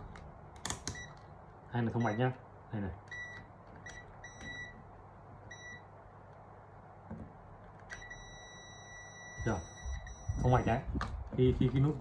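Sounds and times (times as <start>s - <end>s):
multimeter continuity beep: 1.9s - 2.4s, 3.1s - 4.8s, 5.5s - 5.9s, 7.9s - 10.8s.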